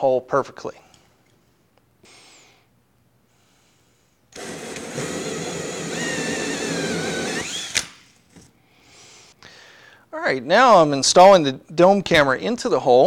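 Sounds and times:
drill hole saw cutting tile: 4.4 - 8.0.

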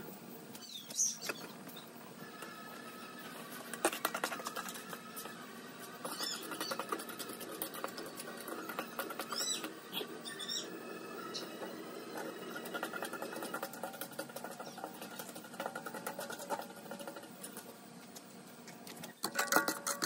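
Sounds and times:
high squeaky chirps: 6.0 - 12.7.

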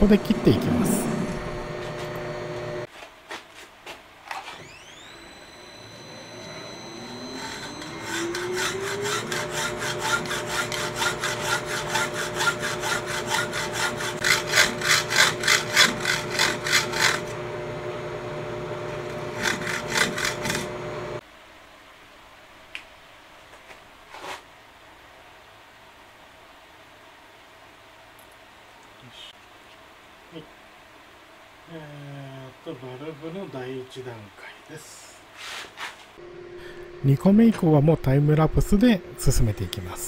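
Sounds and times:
lathe running hum: 0.0 - 2.9, 4.6 - 21.2, 36.2 - 40.0
hacksaw rasping through metal: 7.4 - 17.3, 19.3 - 20.6.

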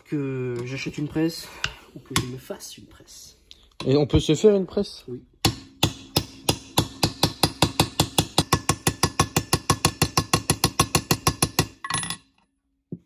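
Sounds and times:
hammer tapping metal: 5.4 - 12.2.

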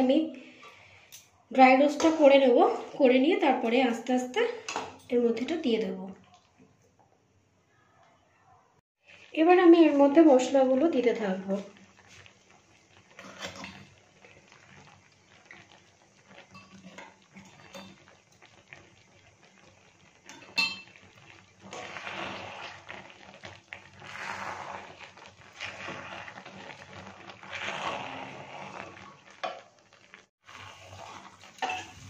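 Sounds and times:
metal spatula scraping a pan: 13.1 - 13.9, 21.7 - 23.1, 24.0 - 29.6, 30.4 - 32.0.

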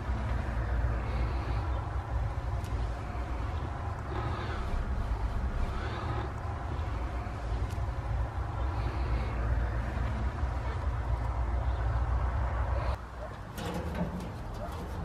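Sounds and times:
paint roller on metal panel: 13.3 - 15.0.

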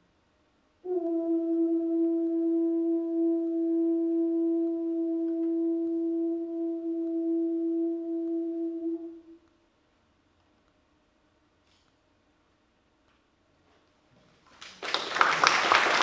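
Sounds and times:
tuba holding high note: 0.8 - 9.4.

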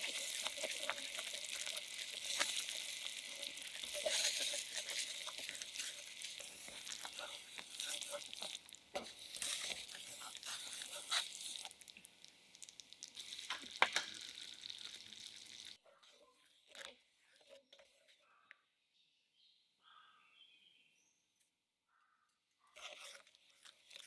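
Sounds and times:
wooden spoon stirring: 0.0 - 12.0
sauce sizzling and bubbling: 0.0 - 15.8.

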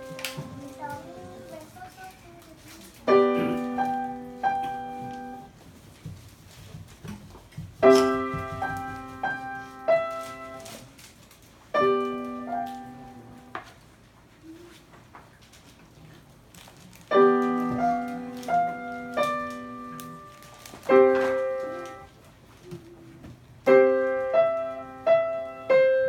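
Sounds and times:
grand piano playing: 3.1 - 5.5, 7.8 - 10.7, 11.8 - 13.5, 17.2 - 22.1, 23.7 - 26.0.

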